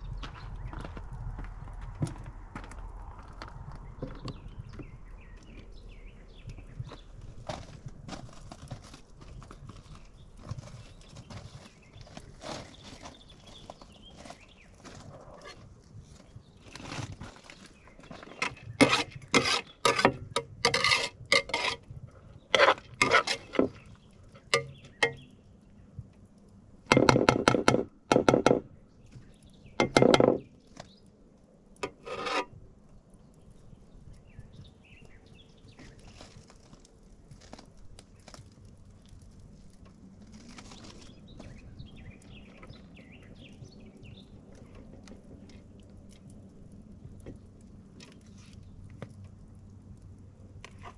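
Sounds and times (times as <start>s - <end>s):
scraping strokes: 16.7s - 21.9s, 22.5s - 24.7s, 31.8s - 32.5s.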